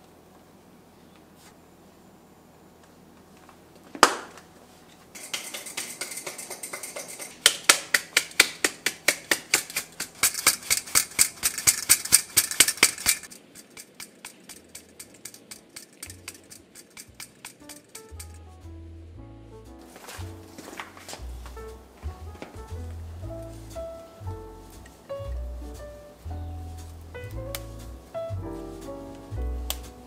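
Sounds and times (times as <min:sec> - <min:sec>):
utensil clicking in mixing bowl: 0:05.2 - 0:18.4.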